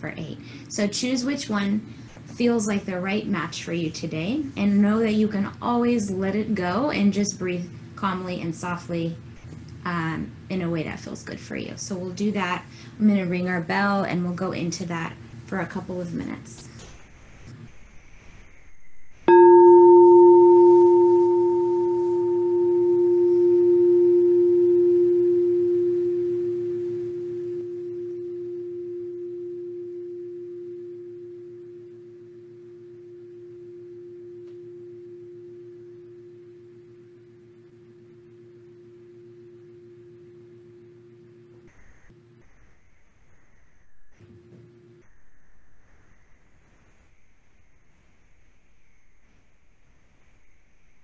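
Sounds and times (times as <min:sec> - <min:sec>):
crystal singing bowl ringing: 0:19.3 - 0:41.5.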